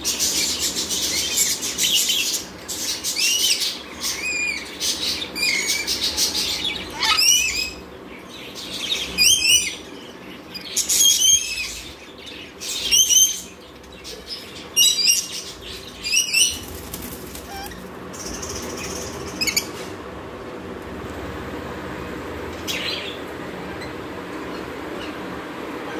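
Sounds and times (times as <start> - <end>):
parrots screeching: 3.2 - 7.8, 9.2 - 9.9, 10.5 - 12.0, 14.8 - 15.4, 17.3 - 17.9.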